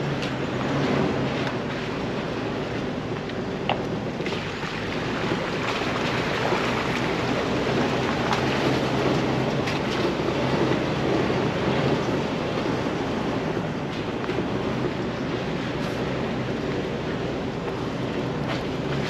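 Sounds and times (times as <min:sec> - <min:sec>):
engine humming: 0:00.0 - 0:19.0.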